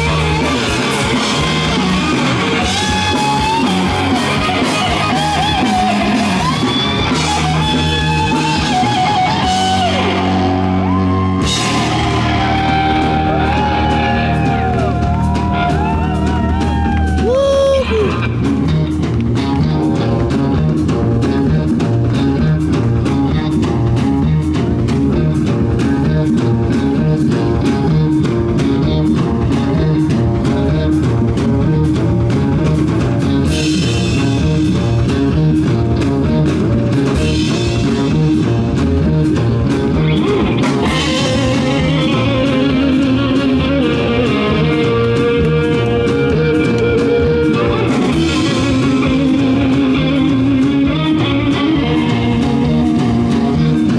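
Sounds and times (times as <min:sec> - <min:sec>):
live rock band playing: 0:00.0 - 0:53.9.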